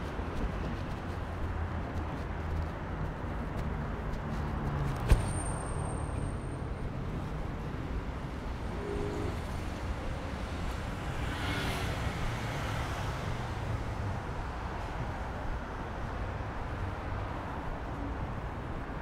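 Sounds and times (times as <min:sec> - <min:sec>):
road traffic: 0:00.0 - 0:19.0.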